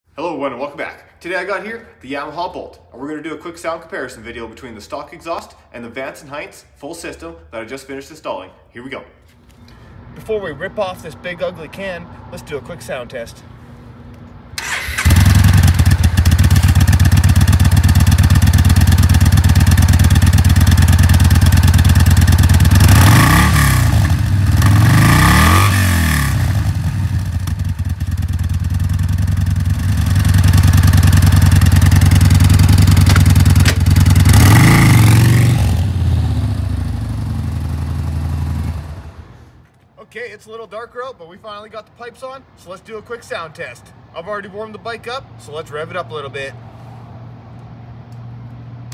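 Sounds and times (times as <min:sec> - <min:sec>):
motorcycle engine starting and idling: 0:14.5 - 0:39.6
motorcycle engine revving: 0:14.6 - 0:39.4.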